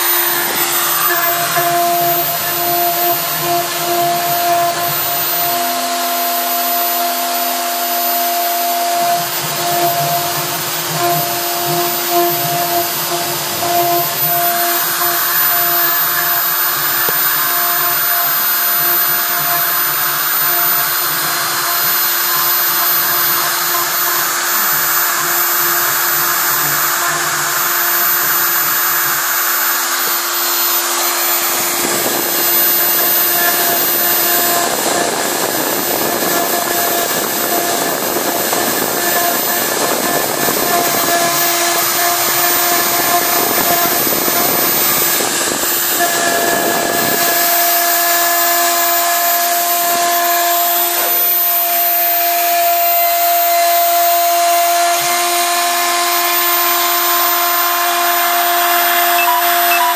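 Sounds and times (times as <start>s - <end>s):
bit carving wood hiss: 0.0s - 59.9s
router spindle motor whine: 0.0s - 59.9s
stepper motors moving gantry: 0.0s - 59.9s.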